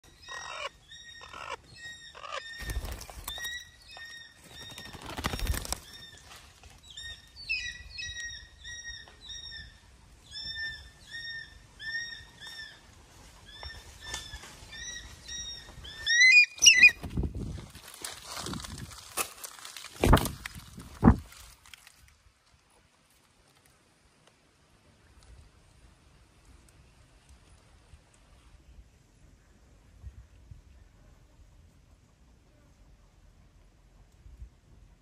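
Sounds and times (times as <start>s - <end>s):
small birds calling: 0.0s - 6.2s
wing beats: 2.2s - 3.5s
owl wings flapping: 2.5s - 3.6s, 4.4s - 6.6s.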